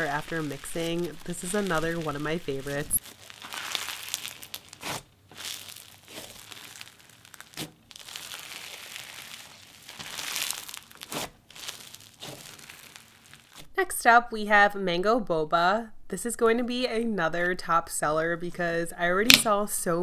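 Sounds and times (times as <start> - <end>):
slime crunching and crackling: 0.0 - 13.7.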